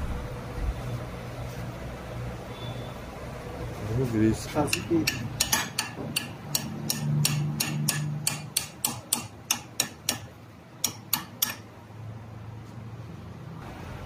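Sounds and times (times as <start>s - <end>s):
hammer tapping on metal: 4.5s - 11.7s.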